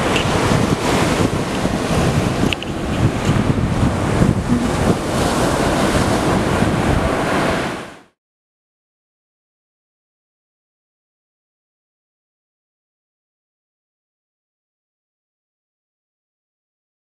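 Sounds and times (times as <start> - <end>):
wind buffeting microphone: 0.0 - 8.0
ocean surf breaking on beach: 0.0 - 8.2.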